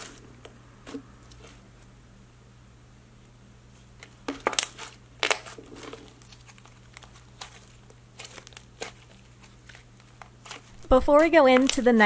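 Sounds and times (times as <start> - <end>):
slime popping and crackling: 4.3 - 12.0.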